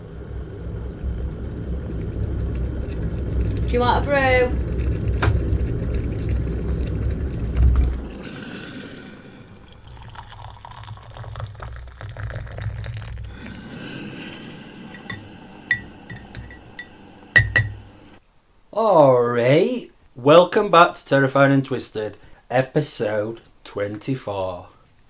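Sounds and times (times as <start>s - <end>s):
low rumble: 0.0s - 8.3s
liquid pouring into mug: 5.6s - 17.8s
teaspoon chinking against mug: 15.0s - 17.8s.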